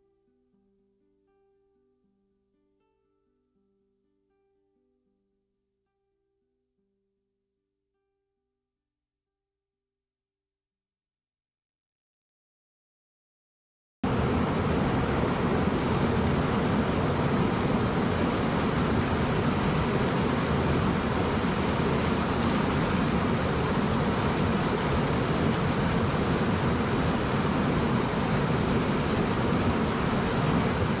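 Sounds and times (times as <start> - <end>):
stream rushing over boulders: 14.0 - 31.0.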